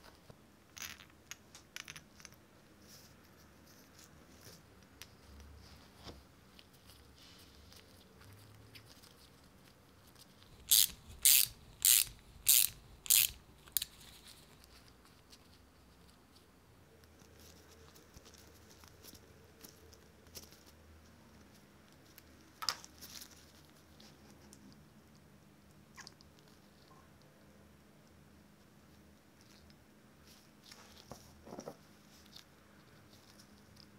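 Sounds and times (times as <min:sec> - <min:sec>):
small metal parts clicking: 0:10.5 - 0:14.0.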